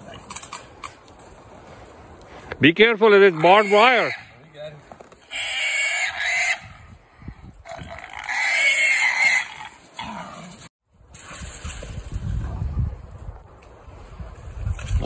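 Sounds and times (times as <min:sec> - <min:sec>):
hog squealing: 0:03.5 - 0:04.4, 0:05.3 - 0:06.7, 0:07.8 - 0:09.8.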